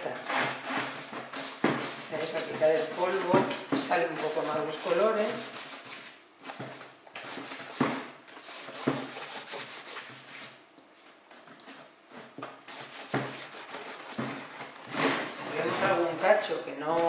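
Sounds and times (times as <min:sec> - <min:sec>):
cloth rag wiping plastic chair: 0:00.0 - 0:10.6, 0:12.7 - 0:17.0.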